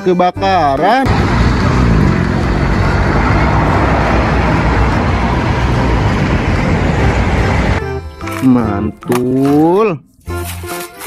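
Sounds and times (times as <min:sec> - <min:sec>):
fire engine running: 0:01.1 - 0:07.9.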